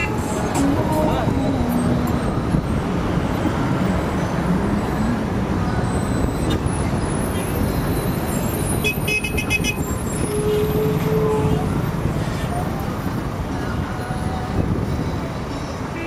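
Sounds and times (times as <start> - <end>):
road traffic rumble: 0.0 - 16.0
vehicle horn: 8.8 - 11.7.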